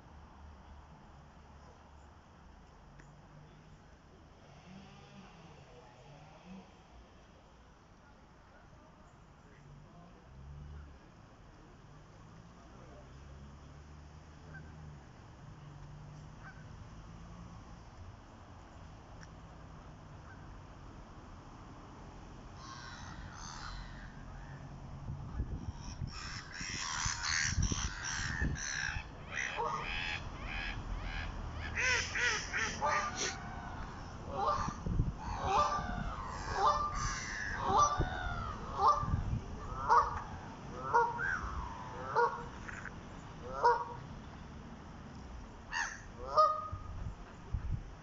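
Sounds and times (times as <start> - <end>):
waterbird calls: 26.2 - 39.1, 40.8 - 42.5.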